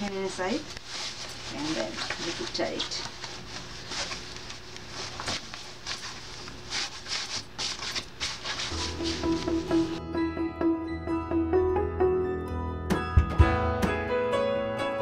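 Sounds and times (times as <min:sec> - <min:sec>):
bed sheet rustling: 0:00.0 - 0:10.0
music: 0:08.7 - 0:15.0.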